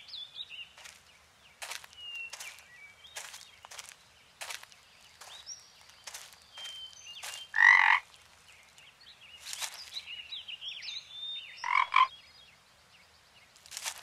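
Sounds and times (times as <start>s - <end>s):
toad croaking: 7.5s - 8.1s, 11.6s - 12.1s.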